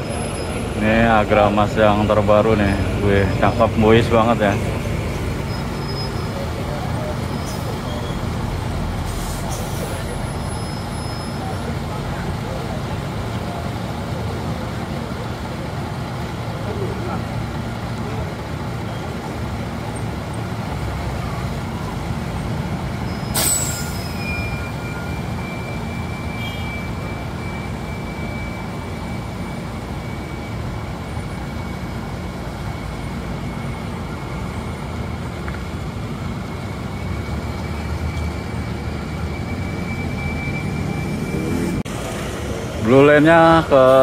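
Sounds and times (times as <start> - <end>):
diesel bus engine rumbling: 0.0 - 44.0
air brake blast: 9.0 - 11.4, 23.1 - 24.8.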